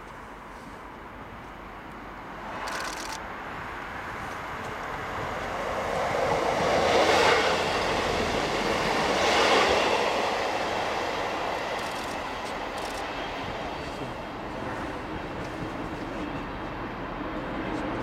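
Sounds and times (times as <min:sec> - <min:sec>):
passing diesel train: 0:00.0 - 0:18.0
diesel locomotive rumbling: 0:02.6 - 0:18.0.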